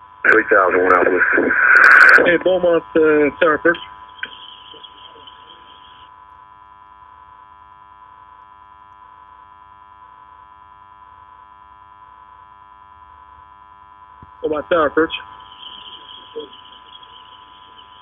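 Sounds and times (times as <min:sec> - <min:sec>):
electrical hum and static: 0:00.0 - 0:18.0
faint pulse on phone line: 0:03.4 - 0:18.0.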